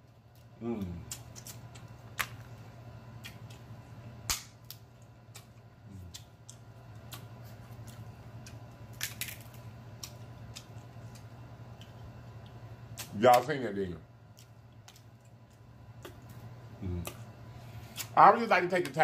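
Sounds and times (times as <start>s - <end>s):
low steady hum: 0.0s - 19.0s
crab shell cracking: 0.3s - 13.4s.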